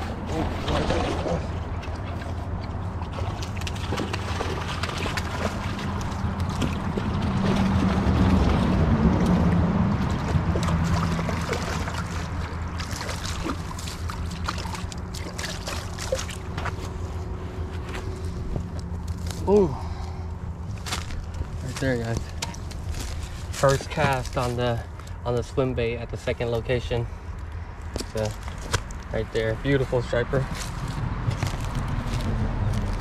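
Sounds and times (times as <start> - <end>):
motorboat engine humming: 0.0 - 24.2.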